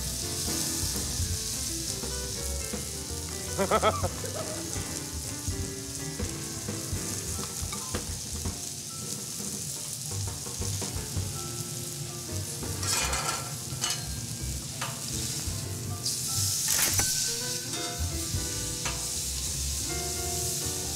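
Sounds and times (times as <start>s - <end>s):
food sizzling on a griddle: 0.0s - 20.9s.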